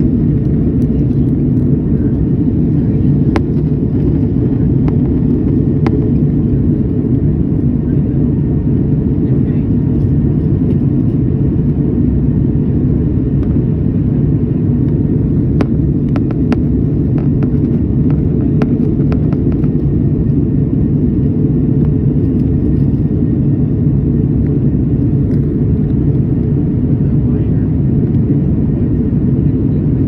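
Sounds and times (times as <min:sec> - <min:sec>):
jet engine cabin rumble: 0:00.0 - 0:30.0.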